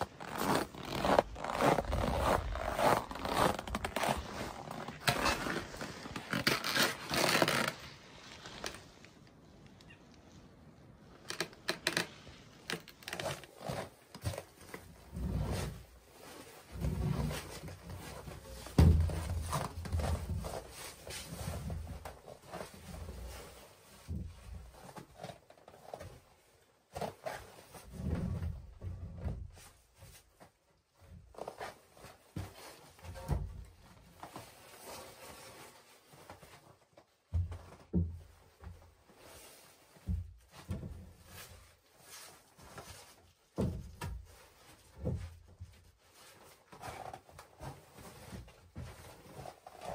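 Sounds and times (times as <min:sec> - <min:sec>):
footsteps: 0:00.0 - 0:09.2
rubber boots stepping on sawdust: 0:00.1 - 0:08.9.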